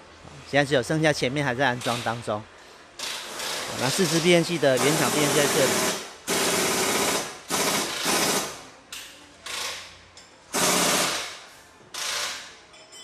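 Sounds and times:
pneumatic impact wrench bursts: 0:03.0 - 0:08.6, 0:10.5 - 0:12.6.

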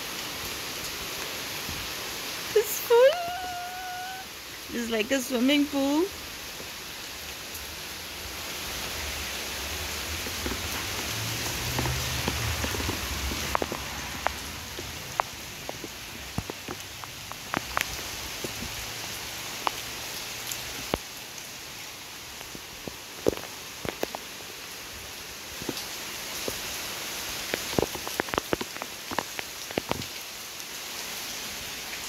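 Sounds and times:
heavy rain on foliage: 0:00.0 - 0:32.0
water drips striking: 0:10.2 - 0:18.8.

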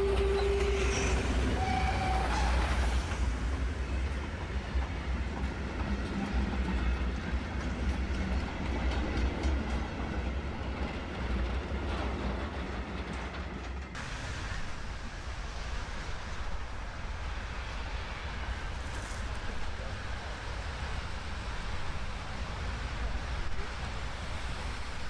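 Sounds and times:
steam locomotive whistle: 0:00.0 - 0:03.0
wheels clicking over rail joints: 0:00.0 - 0:14.1
freight train rumbling past: 0:00.0 - 0:25.0.

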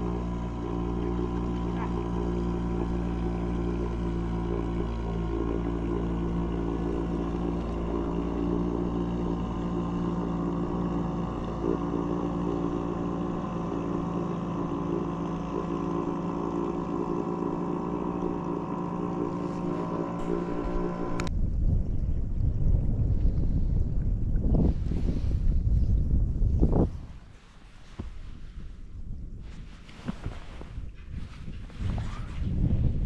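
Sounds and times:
engine running: 0:00.0 - 0:21.3.

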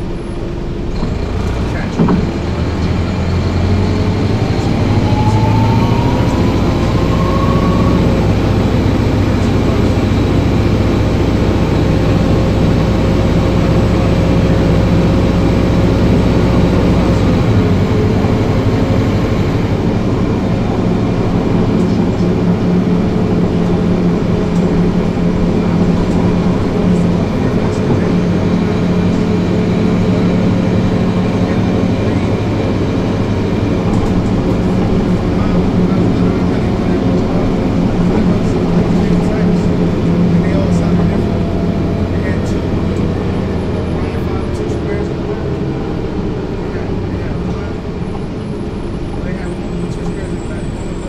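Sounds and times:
bus engine drone: 0:00.0 - 0:51.0
transmission whine rising: 0:00.0 - 0:51.0
thump inside bus: 0:01.9 - 0:02.5.

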